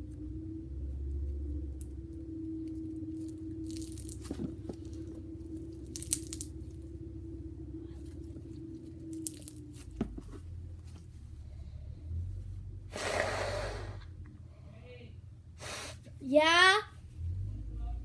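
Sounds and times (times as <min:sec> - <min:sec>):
steady low hum: 0:00.0 - 0:18.0
slime crackles and pops: 0:03.2 - 0:06.8, 0:09.1 - 0:09.8
slime squished and pulled apart: 0:05.8 - 0:06.5.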